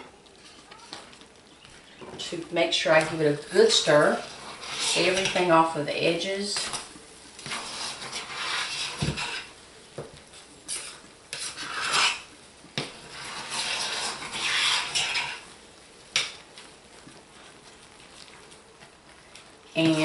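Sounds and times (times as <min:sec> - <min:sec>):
metal spoon scraping thick soap: 0:03.6 - 0:05.5, 0:07.4 - 0:09.5, 0:10.7 - 0:12.3, 0:13.0 - 0:15.5.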